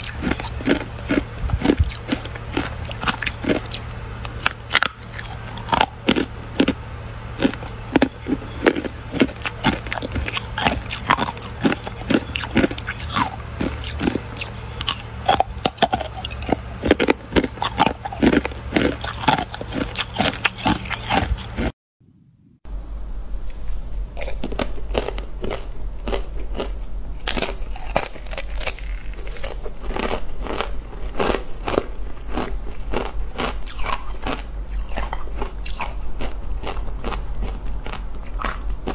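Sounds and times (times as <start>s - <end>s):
ice being bitten and crunched: 7.4s - 21.7s, 24.2s - 38.9s.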